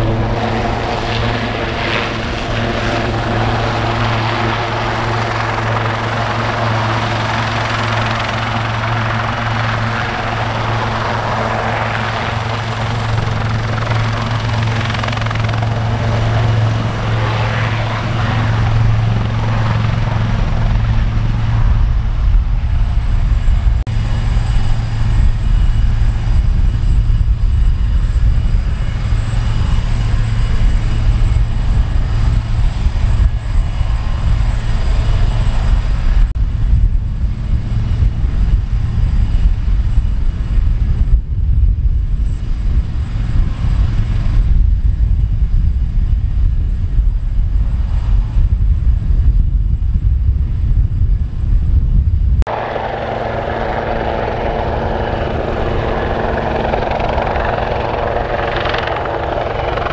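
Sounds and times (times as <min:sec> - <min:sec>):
gusty low rumble: 0:00.0 - 0:59.9
helicopter engines and rotors: 0:00.0 - 0:59.9
high turbine whine: 0:00.0 - 0:59.9.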